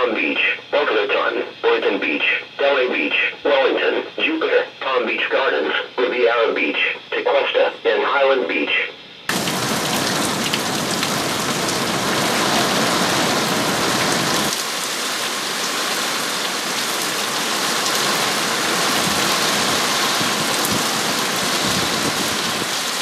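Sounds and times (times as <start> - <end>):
heavy rain: 9.3 - 23.0
rain streaming off roof edge: 9.3 - 23.0.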